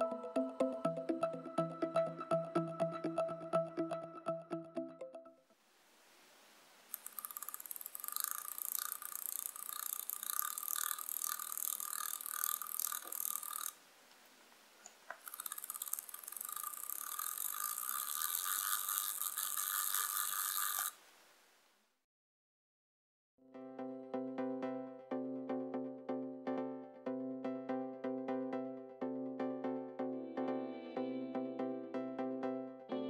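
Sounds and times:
tiny gears whirring and rattling: 6.9s - 13.8s, 15.2s - 21.0s.

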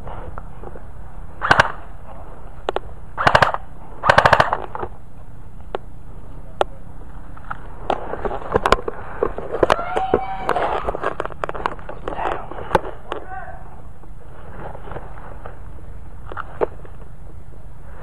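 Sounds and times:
airsoft rifle bursts: 1.4s - 1.8s, 3.2s - 4.8s
single airsoft shots: 1.4s - 1.9s, 3.2s - 4.7s.

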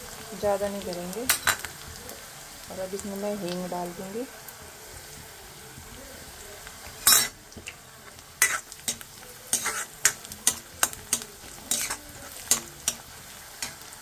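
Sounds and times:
onions sizzling in oil: 0.0s - 14.0s
spoon clinking and scraping pan: 1.3s - 1.7s, 7.0s - 7.8s, 8.4s - 13.9s.

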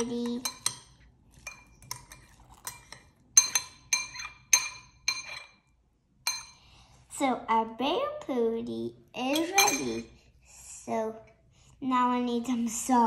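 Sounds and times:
metal spoon clinking glass bowl: 0.0s - 5.6s, 6.2s - 6.6s, 9.3s - 10.1s.

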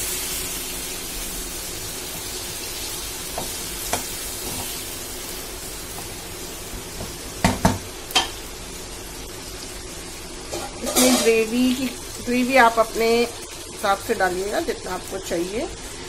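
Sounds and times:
vegetables sizzling in a pan: 0.0s - 16.0s
spatula knocking against pan: 7.0s - 8.4s
spatula scraping a pan: 10.5s - 11.4s.

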